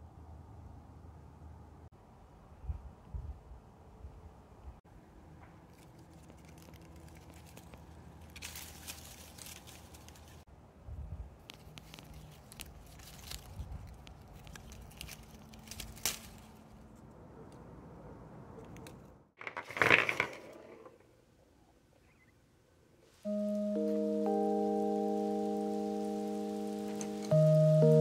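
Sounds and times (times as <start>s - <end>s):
twigs rustling and crackling: 5.6s - 10.5s, 11.4s - 17.2s, 23.9s - 27.5s
twig snapping: 5.8s - 10.4s, 11.4s - 16.7s.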